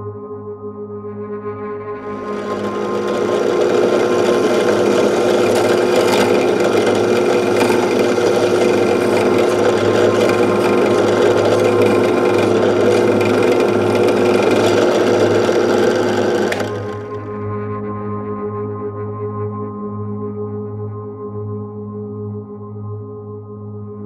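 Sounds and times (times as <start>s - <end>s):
power drill boring plastic: 2.0s - 17.4s.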